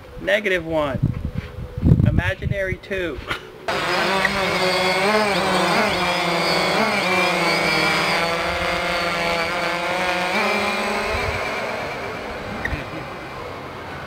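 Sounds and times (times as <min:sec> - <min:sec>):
quadcopter drone buzzing: 0:03.4 - 0:14.0.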